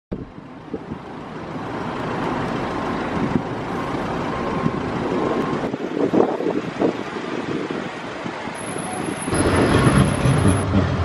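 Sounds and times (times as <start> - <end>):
vehicle rumble and hiss: 0.2 - 11.0
faint high whine: 8.6 - 10.2.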